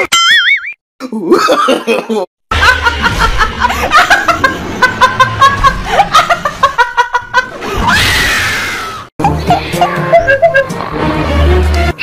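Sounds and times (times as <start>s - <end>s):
woman laughing hard: 1.2s - 7.9s, 9.2s - 10.8s.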